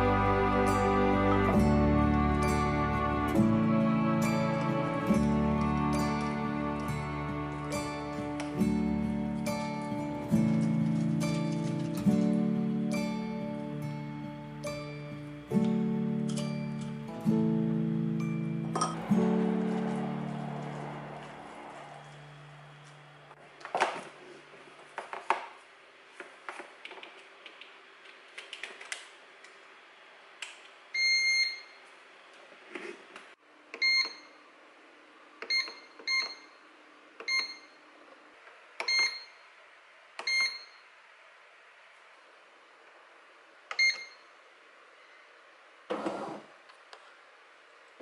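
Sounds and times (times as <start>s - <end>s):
bread machine beeping: 18.1s - 23.3s, 31.0s - 31.8s, 33.8s - 34.4s, 35.5s - 37.8s, 38.8s - 39.6s, 40.2s - 40.9s, 43.7s - 44.3s.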